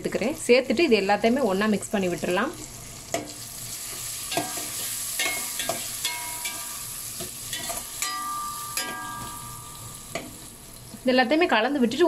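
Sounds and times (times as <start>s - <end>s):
vegetables sizzling in oil: 0.0s - 12.0s
ladle clinking and scraping pan: 4.3s - 9.8s.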